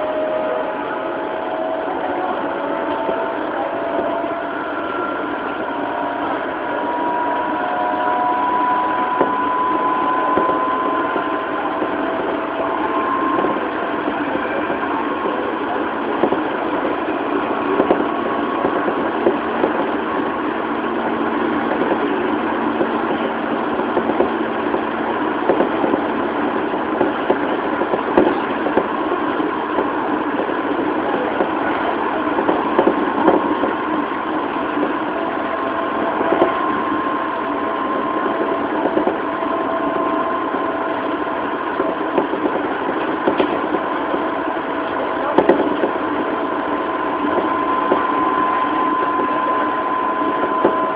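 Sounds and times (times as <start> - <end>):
faint traction motor whine: 0.0 - 50.9
train wheels rumbling on rail: 0.0 - 50.9
wheels clacking over rail joints: 1.9 - 30.0, 31.0 - 50.9.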